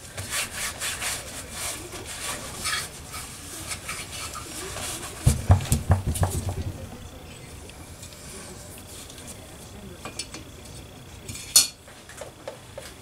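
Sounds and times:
paper towel scrubbing metal: 0.0s - 6.7s
parts knocking on workbench: 5.2s - 7.1s.

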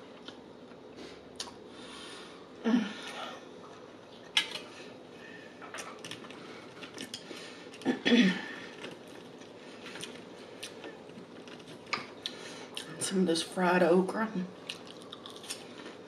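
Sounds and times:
chewing and mouth sounds: 14.6s - 16.0s.

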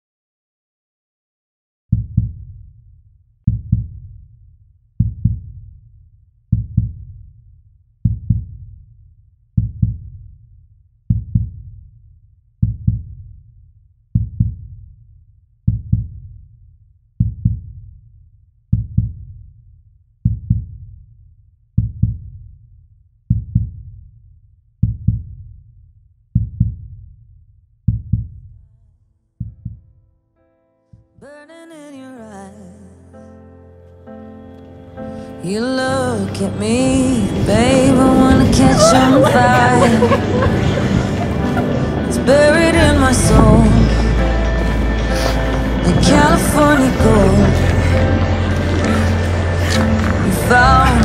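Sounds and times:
heartbeat double thumps: 1.9s - 2.6s, 3.5s - 4.2s, 5.0s - 5.8s, 6.5s - 7.2s, 8.0s - 8.7s, 9.6s - 10.3s, 11.1s - 11.8s, 12.6s - 13.3s, 14.1s - 14.8s, 15.7s - 16.4s, 17.2s - 17.8s, 18.7s - 19.4s, 20.2s - 20.9s, 21.8s - 22.4s, 23.3s - 23.9s, 24.8s - 25.5s, 26.4s - 27.1s, 27.9s - 28.6s, 29.4s - 29.9s.

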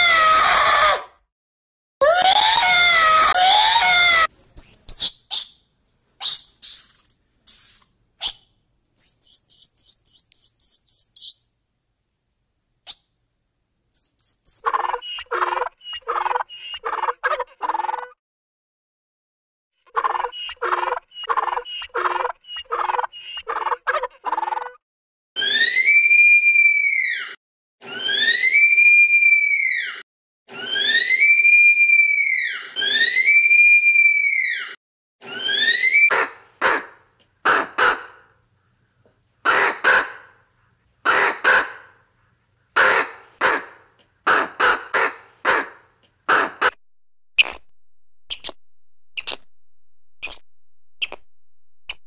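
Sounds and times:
wavering animal cry: 2.1s - 5.5s, 9.0s - 11.4s, 14.0s - 16.7s
rapid repeated animal calls: 4.3s - 5.5s, 9.0s - 11.4s, 14.0s - 17.1s
sharp high chirps: 4.3s - 5.6s, 6.2s - 7.8s, 9.0s - 11.4s, 14.0s - 14.6s.

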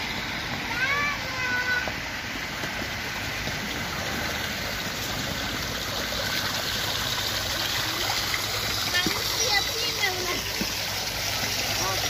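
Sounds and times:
fountain water splashing into pool: 0.0s - 12.0s.

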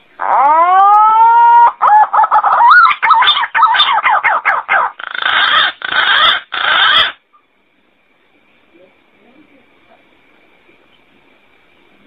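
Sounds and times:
pigeon calling: 0.2s - 7.2s.

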